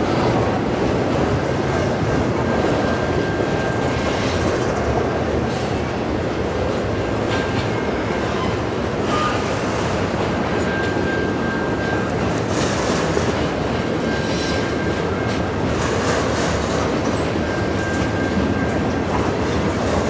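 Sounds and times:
train wheels rumbling on rails: 0.0s - 20.0s
high wheel squeal: 7.3s - 13.2s, 14.0s - 18.9s.

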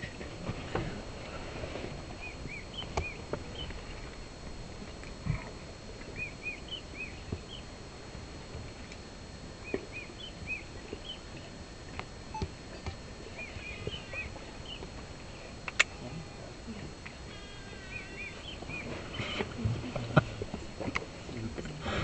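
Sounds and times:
bird chirps: 2.2s - 3.8s, 6.2s - 7.7s, 9.6s - 11.2s, 13.4s - 14.8s, 17.3s - 19.4s.

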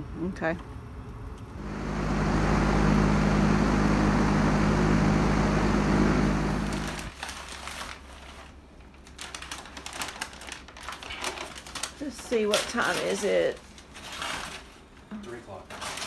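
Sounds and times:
engine-like hum: 1.4s - 7.1s
paper rustling and crinkling: 6.7s - 16.0s.

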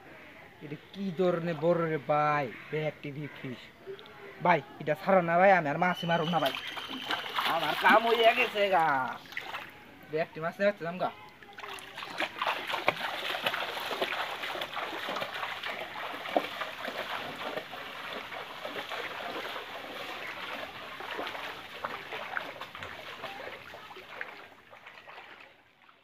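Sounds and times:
feet wading through water: 5.7s - 10.1s, 11.1s - 26.0s.

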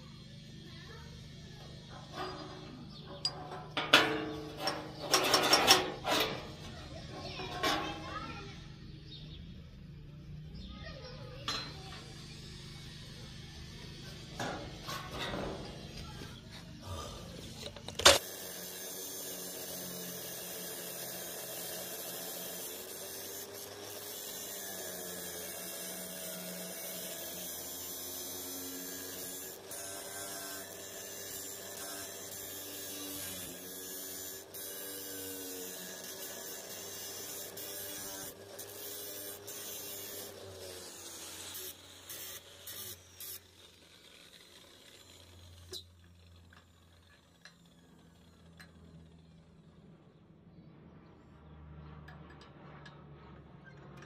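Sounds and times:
electric power tool motor: 12.0s - 49.3s.

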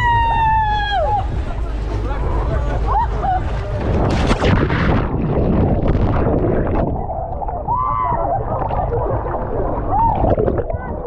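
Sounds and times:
muffled underwater sound: 1.2s - 11.0s
sea water sloshing and splashing: 3.0s - 11.0s
loud splash: 3.5s - 10.7s.

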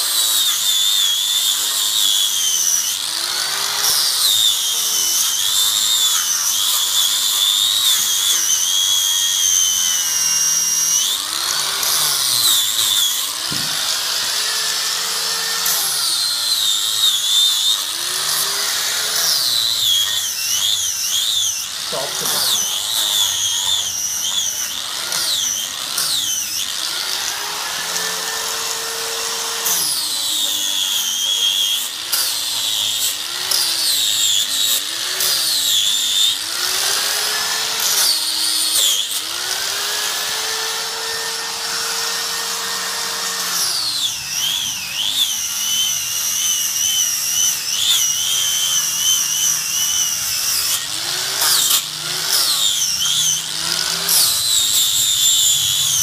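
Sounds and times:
angle grinder grinding wood: 0.0s - 56.0s.

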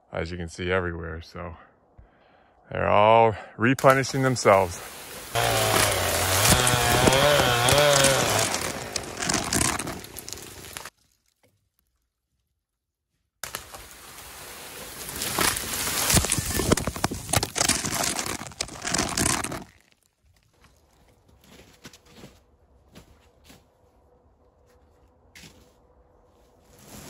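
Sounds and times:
spruce branches crackling and snapping: 5.3s - 11.5s, 13.4s - 20.1s.

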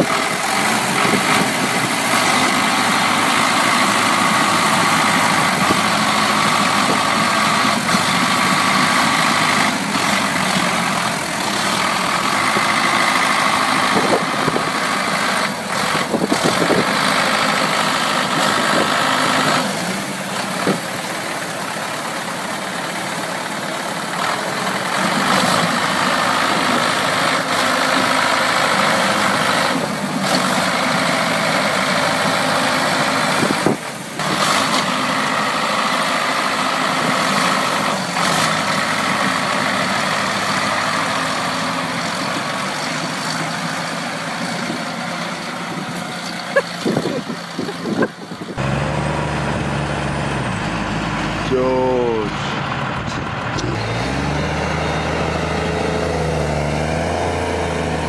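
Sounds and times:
diesel engines running: 0.0s - 58.0s.

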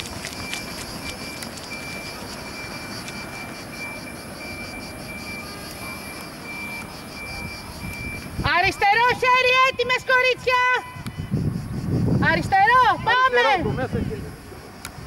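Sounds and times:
faint high repeating tone: 0.4s - 8.8s.

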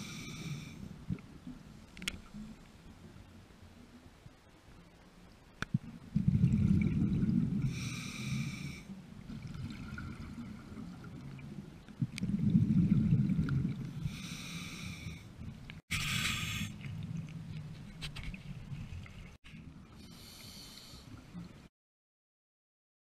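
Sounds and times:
scuba regulator breathing: 7.7s - 8.9s, 14.0s - 15.3s, 15.9s - 16.8s, 20.0s - 21.1s.

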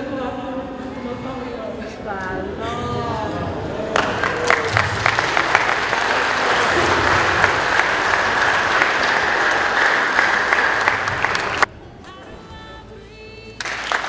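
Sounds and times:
audience applauding: 3.8s - 11.7s, 13.6s - 14.0s.

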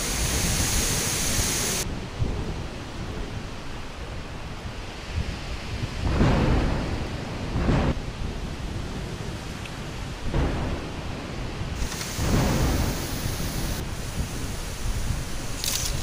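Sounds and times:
steady high hiss: 0.0s - 2.0s, 11.7s - 16.0s
storm wind gusting through trees: 0.0s - 16.0s
wind buffeting microphone: 0.0s - 16.0s.

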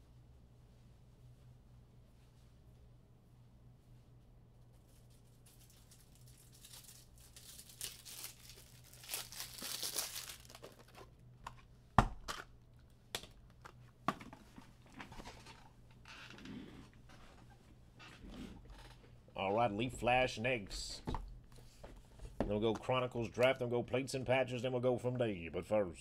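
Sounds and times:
packaging crinkling and tearing: 5.0s - 11.1s.

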